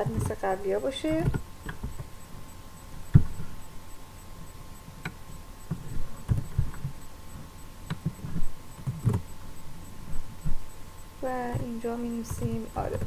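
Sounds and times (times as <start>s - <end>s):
electrical hum: 0.0s - 13.0s
keyboard and mouse clicks: 5.0s - 7.0s, 7.9s - 9.3s, 11.5s - 13.0s.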